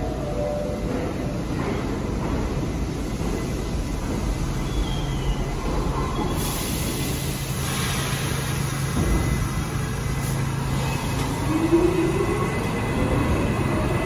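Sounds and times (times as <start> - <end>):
subway train rumble and hum: 0.0 - 14.0
hiss: 6.4 - 9.0.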